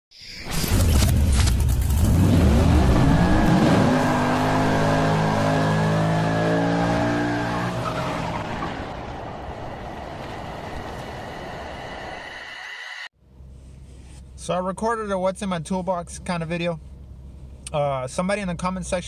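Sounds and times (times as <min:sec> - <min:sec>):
car engine revving hard: 0:01.8 - 0:08.8.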